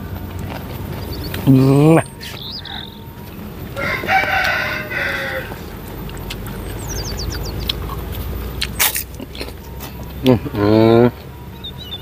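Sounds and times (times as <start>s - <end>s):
high bird chirps: 0.9s - 3.2s, 6.5s - 8.4s, 11.5s - 12.0s.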